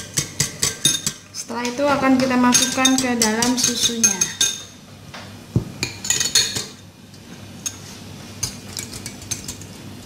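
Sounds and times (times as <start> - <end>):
whisking: 0.0 - 1.4
whisk clinking glass bowl: 0.0 - 4.8, 8.4 - 9.8.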